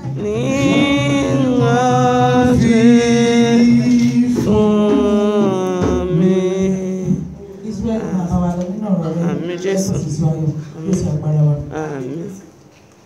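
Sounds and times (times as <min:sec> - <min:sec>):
church hymn singing: 0:00.0 - 0:08.1.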